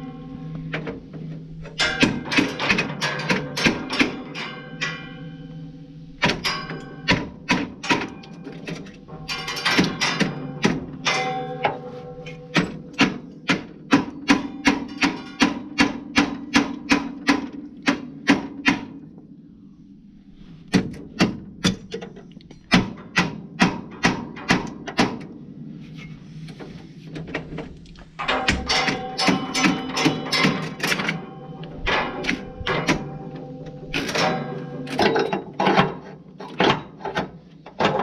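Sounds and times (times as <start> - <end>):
hammer striking metal: 1.7 - 5.5, 6.2 - 19.1, 28.2 - 38.0.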